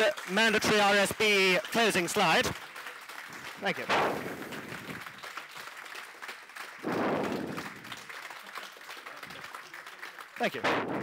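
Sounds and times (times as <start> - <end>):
crowd clapping: 0.0 - 11.0.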